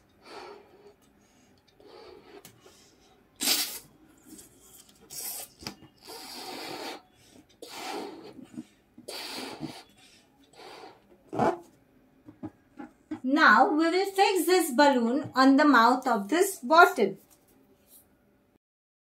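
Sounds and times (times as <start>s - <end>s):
breathy puffs blowing balloon: 5.1s - 11.7s.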